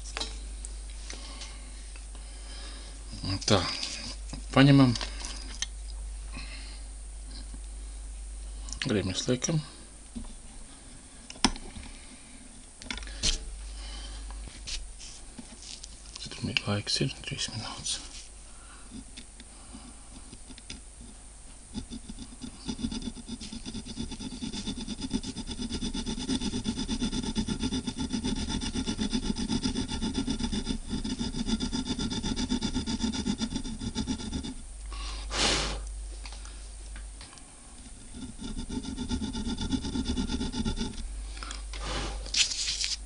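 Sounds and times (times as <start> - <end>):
saw blade rasping on wire: 21.7 - 34.6, 37.9 - 41.1.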